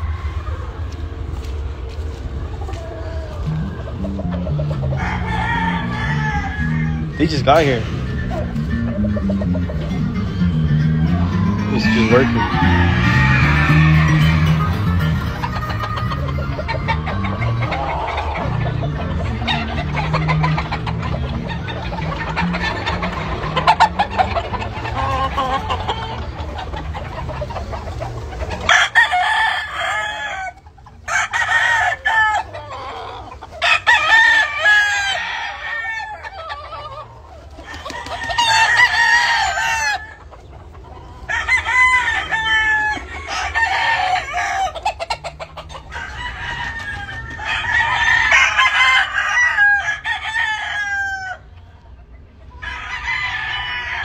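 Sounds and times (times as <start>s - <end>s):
roosters crowing: 0.0s - 54.0s.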